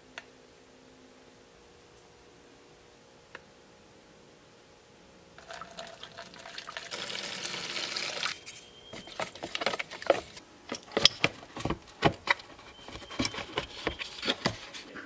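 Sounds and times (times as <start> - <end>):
liquid pouring into plastic tub: 5.4 - 8.4.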